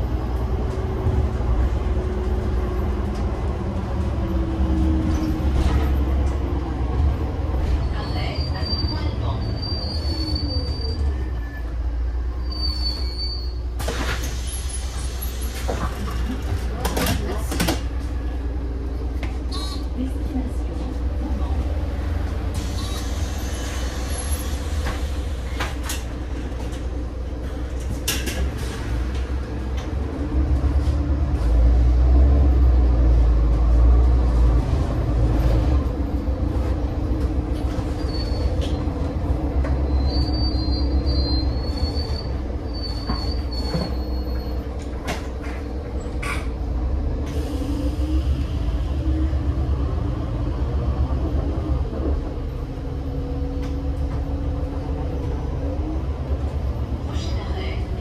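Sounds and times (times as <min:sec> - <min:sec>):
bus diesel engine rumble: 0:00.0 - 0:58.0
faint high squeal: 0:07.9 - 0:11.8, 0:12.4 - 0:13.6, 0:37.9 - 0:38.9, 0:39.8 - 0:44.7.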